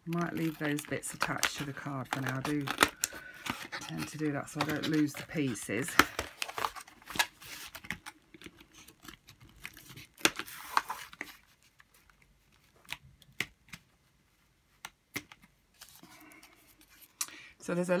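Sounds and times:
plastic packaging crinkling: 0.0s - 13.4s.

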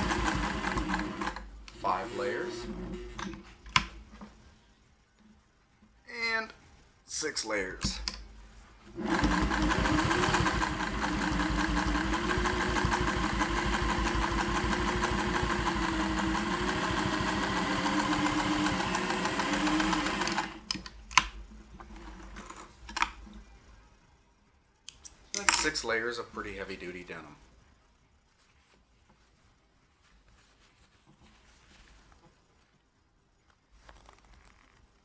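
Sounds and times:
sewing machine stitching: 0.0s - 3.3s, 9.0s - 20.8s.

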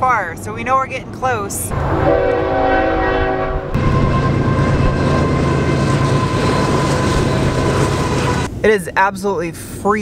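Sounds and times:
locomotives rumbling past: 0.5s - 8.7s
locomotive horn: 1.7s - 8.5s.

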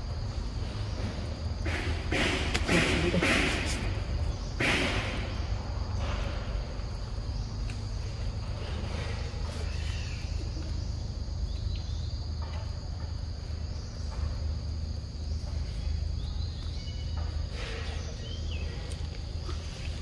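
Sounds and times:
insect chorus: 0.0s - 20.0s.

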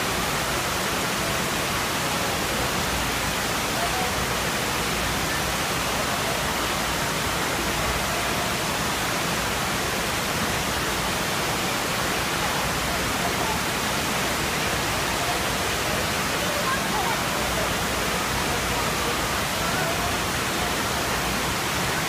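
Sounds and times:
rushing pumped water: 0.0s - 22.0s.

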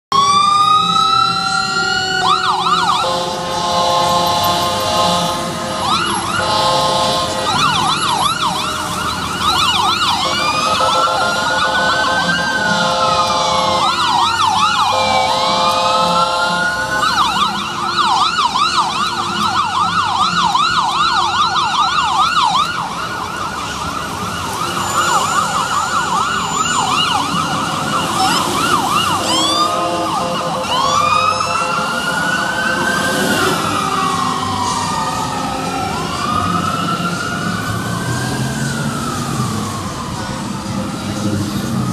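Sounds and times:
electronic sirens wailing and yelping: 0.1s - 41.9s
long horn blasts: 1.8s - 9.0s, 9.8s - 17.6s, 29.0s - 33.7s.

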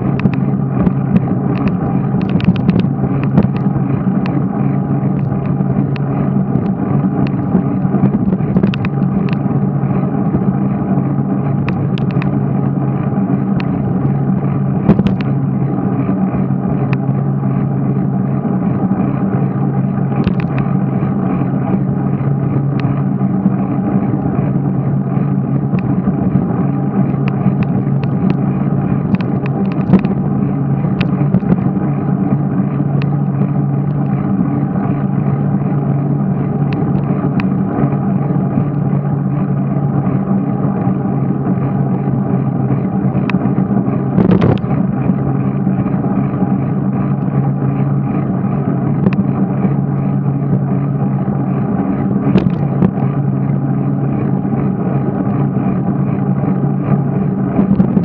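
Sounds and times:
sharp clicks and knocks: 0.0s - 4.4s, 5.1s - 9.5s, 11.6s - 12.4s, 14.8s - 15.4s, 20.2s - 20.8s, 25.7s - 28.4s, 29.0s - 31.7s, 44.2s - 44.8s, 49.0s - 49.3s, 52.2s - 53.0s, 57.6s - 58.0s
muffled wind and riding rumble: 0.0s - 58.0s.

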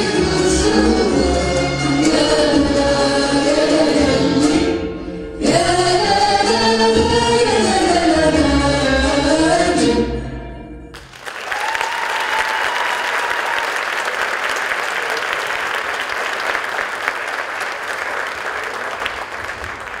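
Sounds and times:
audience applauding: 11.0s - 20.0s
high call from crowd: 11.2s - 19.0s.

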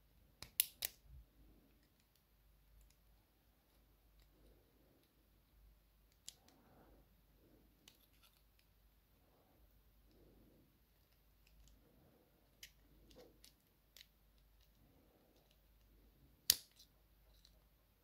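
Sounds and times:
pliers clicking and scraping metal: 7.8s - 8.7s.

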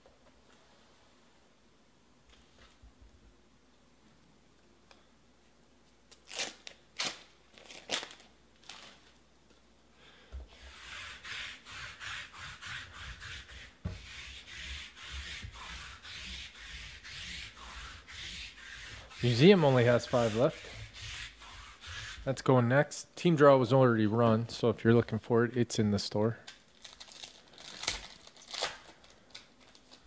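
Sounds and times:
foil packs crackling: 6.2s - 9.1s, 26.7s - 30.0s
rubbing and sliding strokes: 10.5s - 22.5s.

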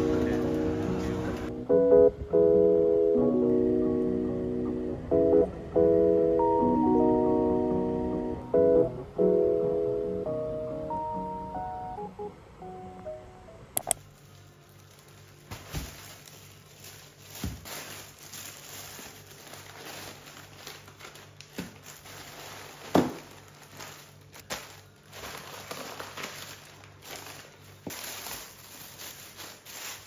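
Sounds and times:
plastic bags rustling: 0.0s - 1.5s, 14.0s - 30.0s
items thumping on table: 22.9s - 23.3s.

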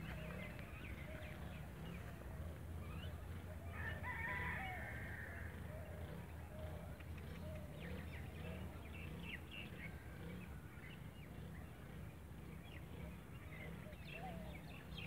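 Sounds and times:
small birds chirping: 0.0s - 3.9s, 5.2s - 15.0s
rooster crowing: 3.7s - 5.5s.

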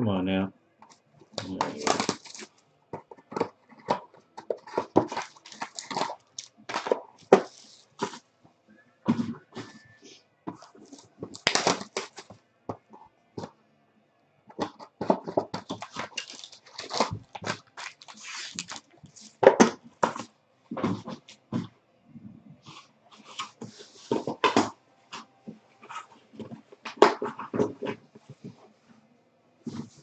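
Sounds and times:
foil packs crinkling: 1.4s - 2.6s, 4.6s - 8.2s, 10.8s - 12.4s, 15.4s - 19.4s.

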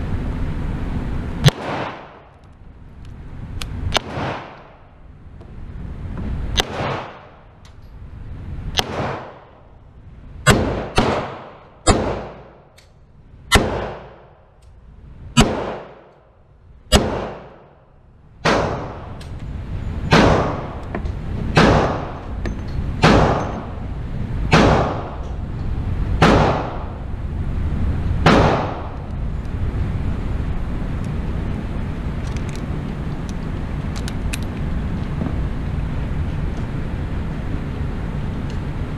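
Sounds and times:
revolver gunshots echoing indoors: 1.4s - 2.4s, 3.9s - 4.9s, 6.6s - 7.5s, 8.8s - 9.7s, 10.4s - 12.8s, 13.5s - 14.4s, 15.4s - 16.2s, 16.9s - 17.8s, 18.4s - 19.2s, 20.1s - 20.8s, 21.5s - 22.2s, 23.0s - 23.8s, 24.5s - 25.2s, 26.1s - 27.0s, 28.2s - 29.0s.

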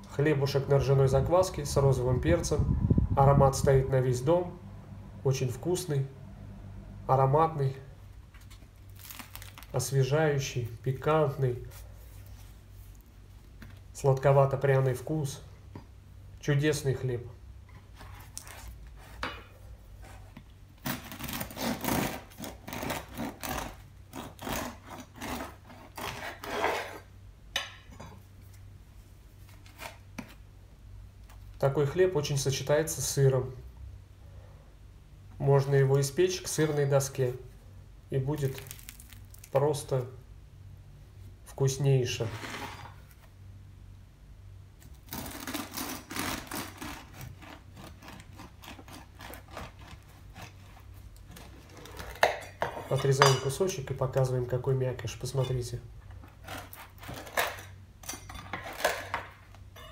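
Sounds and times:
bread knife sawing through crust: 20.8s - 27.0s, 45.1s - 51.6s.

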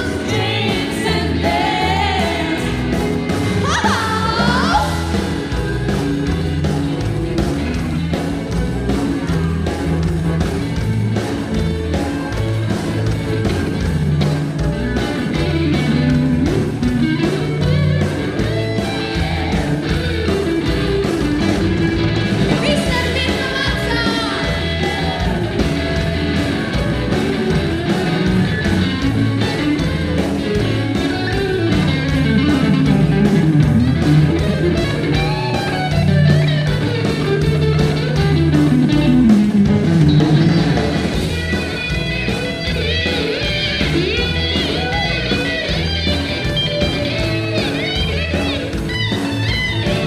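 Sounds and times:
woman singing: 0.0s - 3.0s, 3.6s - 5.1s, 22.6s - 25.5s
live rock band playing: 0.0s - 50.0s.

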